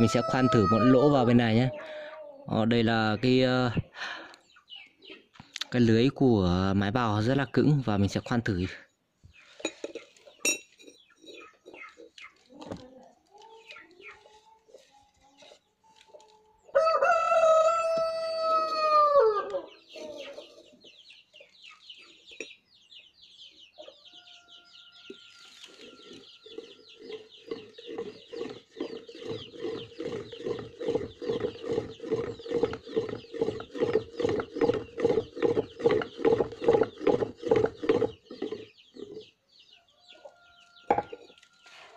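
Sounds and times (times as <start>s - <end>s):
rooster crowing: 0.0s - 2.3s, 16.7s - 19.7s
pump drill grinding into steel: 27.9s - 38.6s.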